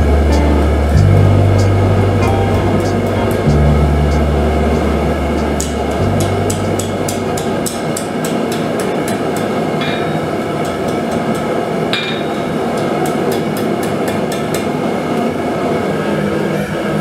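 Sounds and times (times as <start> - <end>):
ringing metallic notes: 0.0 - 10.9, 11.9 - 13.1
hammer striking hot steel: 0.4 - 15.3.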